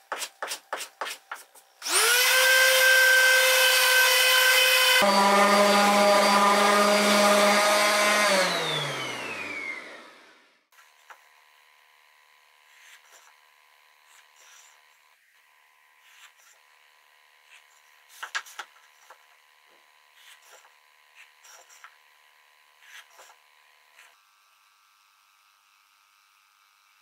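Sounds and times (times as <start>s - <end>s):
taps knocks and scrapes on wood: 18.1s - 19.2s.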